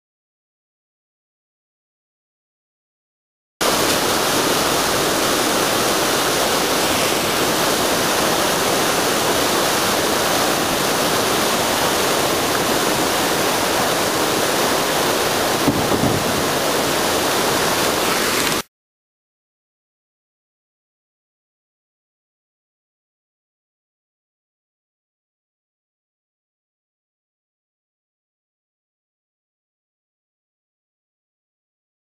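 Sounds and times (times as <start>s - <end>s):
river water rushing over rocks: 3.6s - 18.6s.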